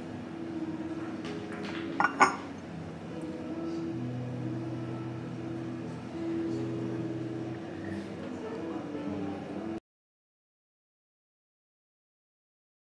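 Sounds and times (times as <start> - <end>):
soft background music: 0.0 - 9.8
teacup clinking on saucer: 2.0 - 2.5.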